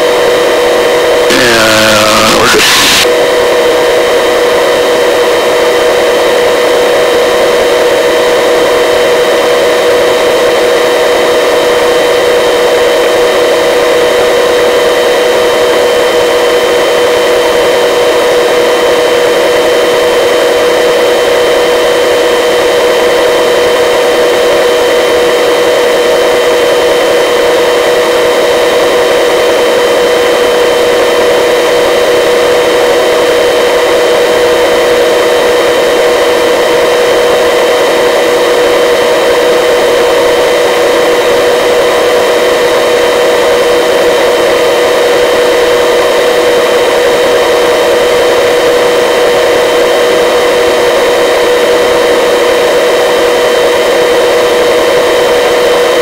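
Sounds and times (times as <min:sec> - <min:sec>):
helicopter engine whine: 0:01.3 - 0:03.1.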